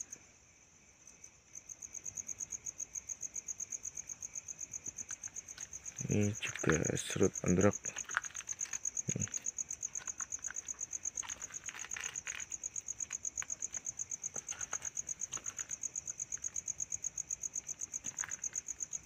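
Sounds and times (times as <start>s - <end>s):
insect chirping: 0.0s - 19.0s
faint ticks and rustles: 4.0s - 19.0s.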